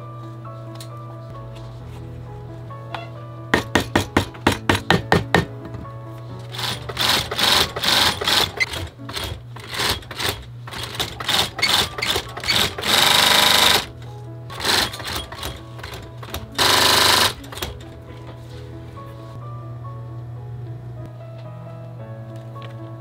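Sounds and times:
sewing machine stitching leather: 6.5s - 13.9s, 14.5s - 17.8s.

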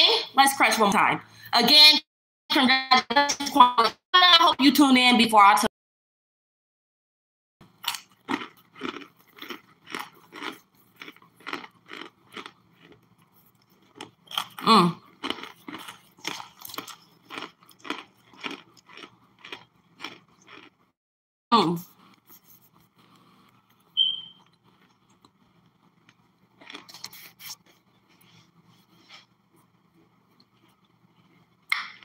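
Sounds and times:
chunks crunching as chewed: 7.8s - 20.9s, 22.0s - 28.4s.

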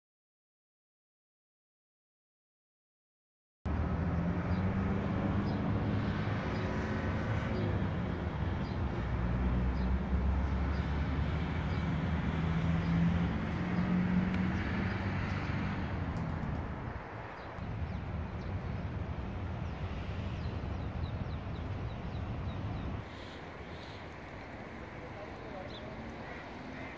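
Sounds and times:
car engines humming: 3.7s - 26.9s
road traffic rumble: 3.7s - 26.9s.

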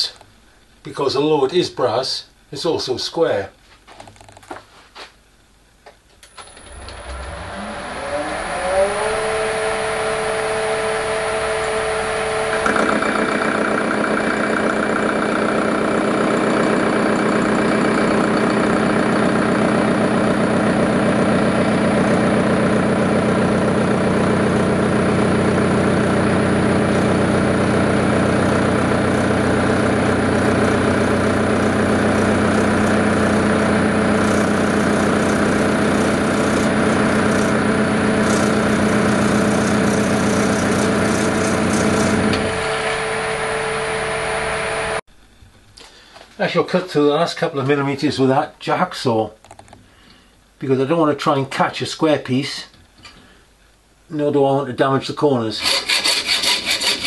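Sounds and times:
metal lathe motor running: 6.5s - 45.0s, 55.6s - 57.0s
parting tool cutting brass: 34.1s - 42.5s, 55.6s - 57.0s.

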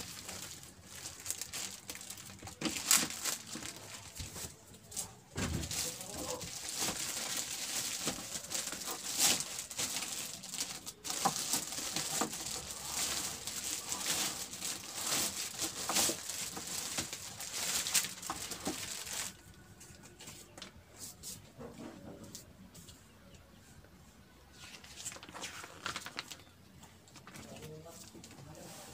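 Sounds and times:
plastic wrapping crinkling: 0.0s - 20.6s, 24.6s - 26.5s.

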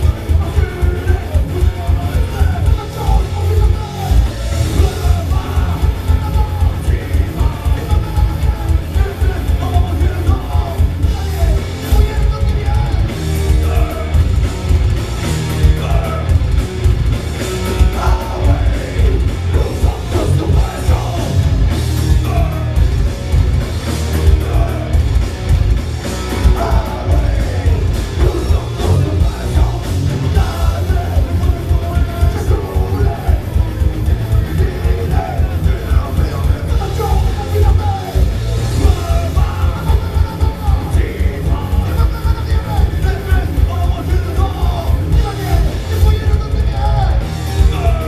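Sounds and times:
person singing: 0.0s - 14.4s, 17.6s - 22.8s, 26.2s - 48.0s
metal band playing: 0.0s - 48.0s.

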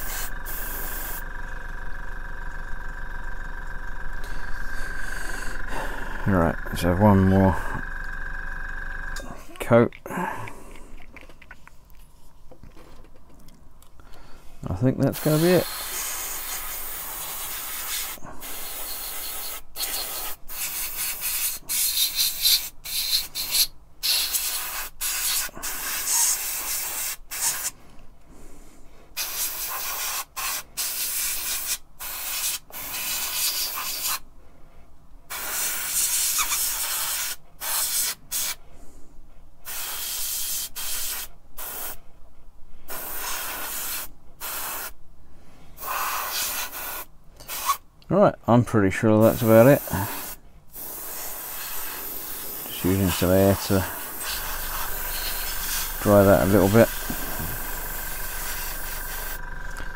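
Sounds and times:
airbrush hissing: 0.0s - 9.2s, 15.2s - 27.7s, 29.2s - 34.2s, 35.3s - 38.6s, 39.7s - 42.0s, 42.9s - 45.0s, 45.8s - 47.8s, 49.2s - 59.9s.

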